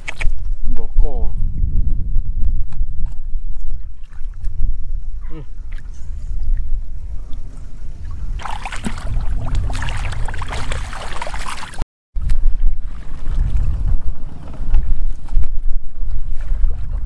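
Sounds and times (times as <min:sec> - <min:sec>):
wind rumble on microphone: 0:00.0 - 0:17.0
hands splashing in muddy water: 0:08.4 - 0:12.4.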